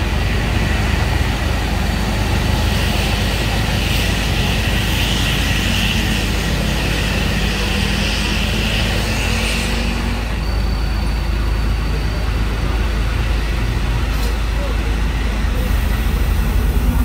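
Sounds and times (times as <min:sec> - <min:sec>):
diesel truck engine idling: 0:10.5 - 0:17.0.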